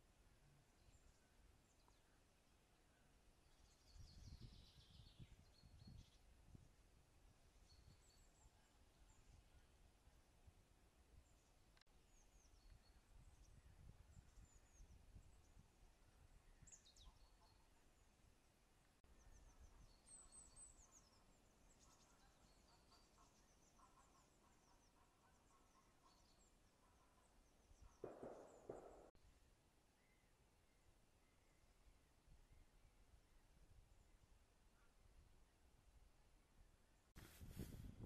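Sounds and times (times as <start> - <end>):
songbirds chirping: 0.0 - 37.2
low wind rumble: 37.2 - 38.0
rustling noise: 37.2 - 38.0.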